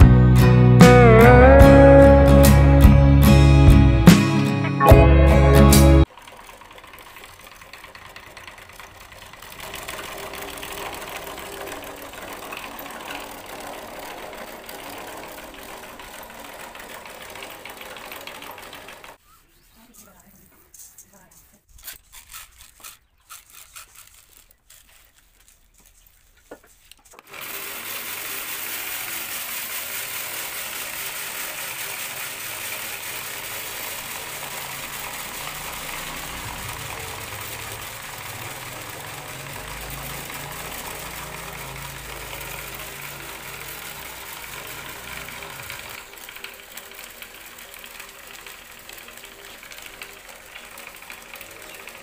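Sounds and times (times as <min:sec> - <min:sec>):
small motor shaking sieve: 0:05.8 - 0:19.2, 0:21.7 - 0:52.0
grain poured into hopper: 0:06.0 - 0:19.2, 0:27.2 - 0:52.0
grain rattling in sieve: 0:06.0 - 0:19.2, 0:22.0 - 0:52.0.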